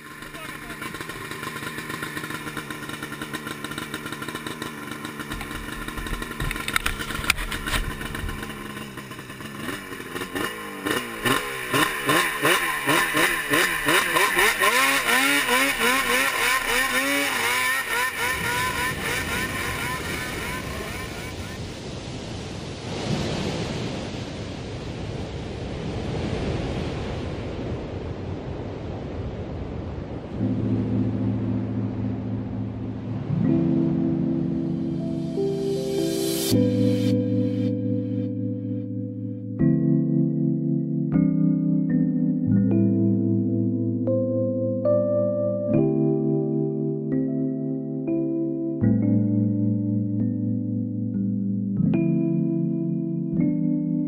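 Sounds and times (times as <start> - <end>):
snowmobile engine idling: 0.0 - 21.8
snowmobile engine revving: 0.0 - 21.8
snowmobile low rumble: 0.0 - 47.5.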